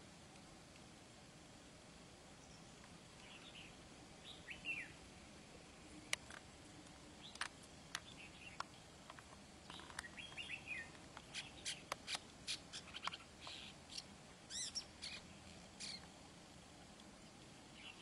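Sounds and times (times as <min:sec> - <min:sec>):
shrike singing: 0:02.4 - 0:05.0, 0:09.7 - 0:16.0.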